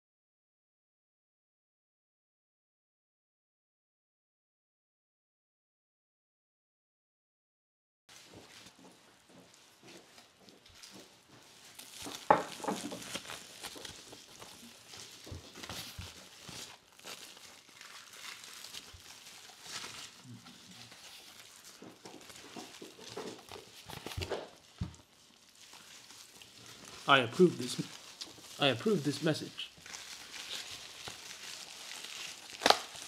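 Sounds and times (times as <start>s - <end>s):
cardboard box crinkling and rustling: 10.2s - 33.0s.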